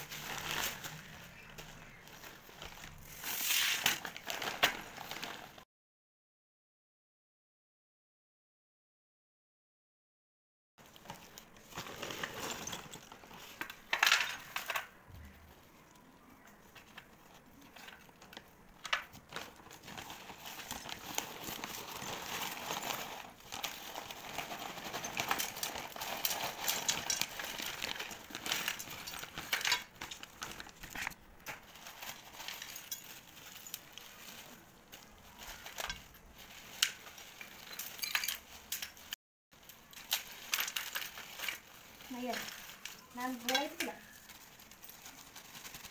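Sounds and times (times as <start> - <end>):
plastic bag crinkling: 0.0 - 5.6, 10.8 - 45.9
clay pieces clinking on steel plate: 37.6 - 38.9.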